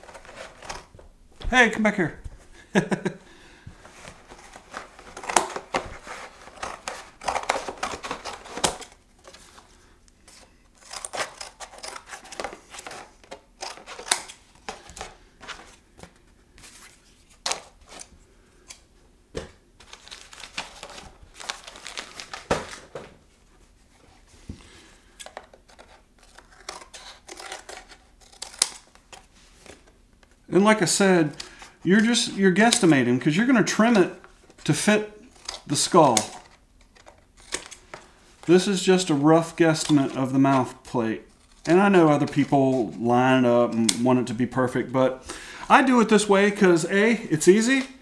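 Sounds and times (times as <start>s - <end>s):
cardboard rustling and scraping: 0.0s - 1.0s, 3.8s - 18.1s
scissors cutting cardboard: 10.8s - 13.0s.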